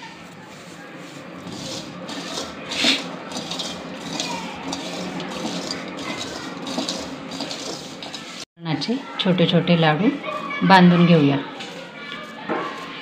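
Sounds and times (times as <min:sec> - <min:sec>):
hand rubbing crumbly mixture: 0:00.0 - 0:08.4, 0:11.4 - 0:13.0
fingers scraping steel bowl: 0:01.1 - 0:08.4.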